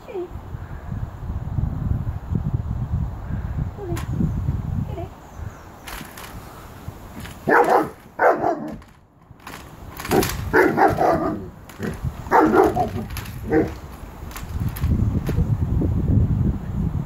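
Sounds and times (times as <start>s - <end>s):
dog barking and woofing: 7.4s - 8.8s, 10.0s - 13.9s.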